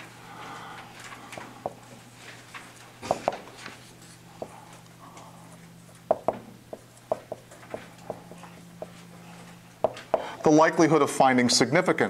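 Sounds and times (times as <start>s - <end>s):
steady low hum: 0.0s - 12.0s
marker tapping and squeaking on whiteboard: 6.1s - 9.0s, 9.8s - 10.3s.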